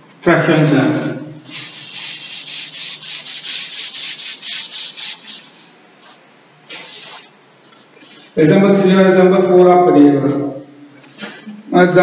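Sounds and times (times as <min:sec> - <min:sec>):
cloth wiping chalkboard: 0:00.9 - 0:09.0.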